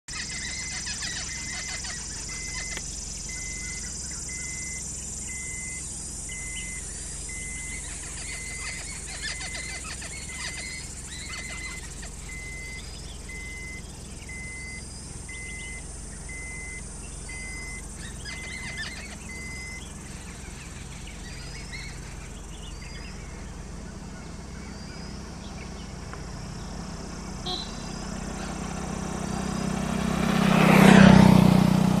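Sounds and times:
rising bird chirps: 0:00.1 - 0:31.7
bird repeating short note: 0:27.4 - 0:28.1.

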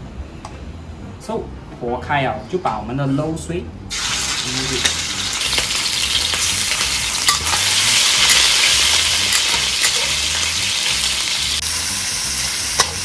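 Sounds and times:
meat sizzling in hot oil: 0:03.9 - 0:13.0
metal spatula clicking on wok: 0:12.8 - 0:13.0.

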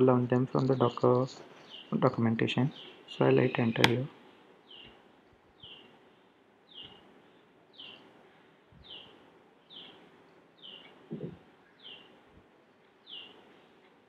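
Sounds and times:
bird chirping faintly: 0:04.6 - 0:08.1, 0:08.8 - 0:13.8.

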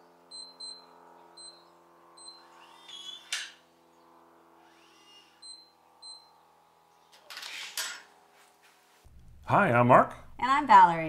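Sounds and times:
lock motor whirring: 0:00.2 - 0:08.1
keypad beeps: 0:00.3 - 0:00.8.

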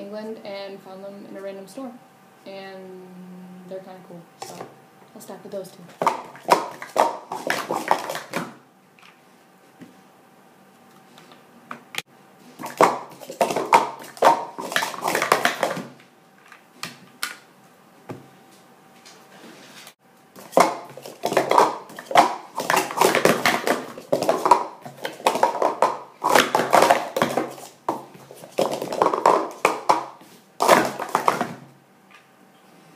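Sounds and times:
plastic cups clattering: 0:06.0 - 0:09.2, 0:12.6 - 0:15.9, 0:20.4 - 0:31.7.

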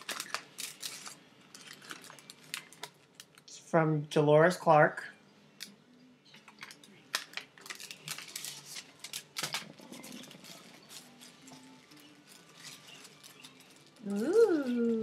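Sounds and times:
tissue paper rustling and crinkling: 0:00.0 - 0:03.4, 0:07.1 - 0:15.0.

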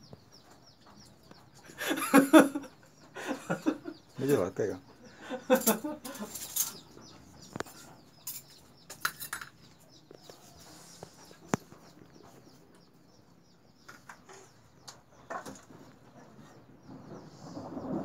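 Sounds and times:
metal spoon clinking on plates: 0:05.5 - 0:06.8, 0:07.6 - 0:09.8.

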